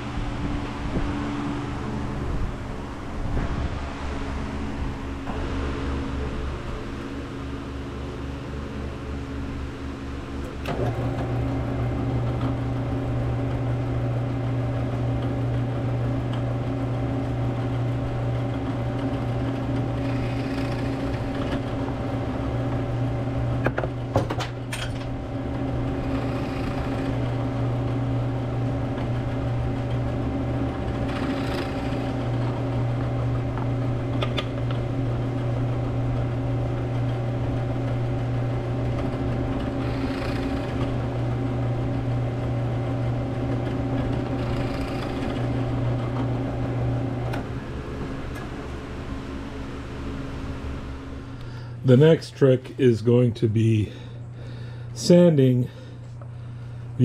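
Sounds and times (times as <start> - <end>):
drill press motor humming: 0.0 - 57.0
drill bit boring into wood: 19.0 - 22.0, 25.9 - 27.4, 30.9 - 32.6, 39.0 - 41.2, 43.7 - 46.2.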